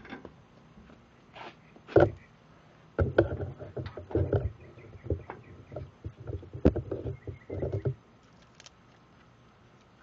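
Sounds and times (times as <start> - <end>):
scraping: 3.0 - 9.0.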